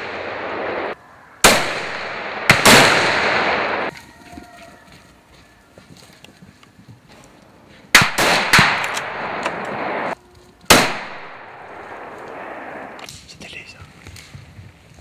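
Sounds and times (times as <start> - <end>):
rifle shots echoing: 0.0 - 3.9, 7.9 - 13.0.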